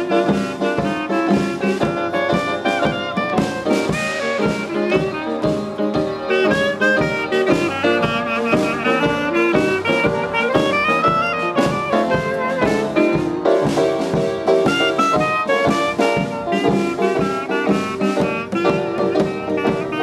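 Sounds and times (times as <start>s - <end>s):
clarinet melody: 0.0s - 20.0s
drum kit keeping time: 0.0s - 20.0s
small jazz band playing: 0.0s - 20.0s.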